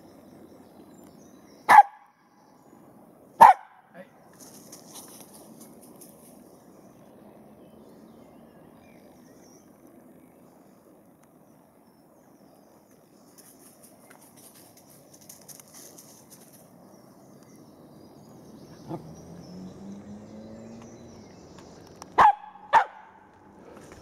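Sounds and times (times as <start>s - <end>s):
quiet woodland background: 0.0s - 24.0s
dog barks: 1.7s - 2.1s, 3.4s - 3.9s, 22.2s - 23.2s.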